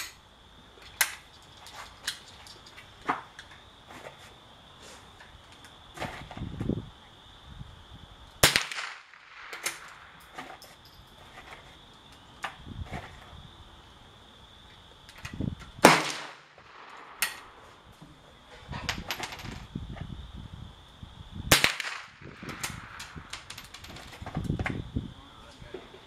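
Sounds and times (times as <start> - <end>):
loud gunshots: 8.4 - 9.6, 15.8 - 16.5, 21.5 - 22.2.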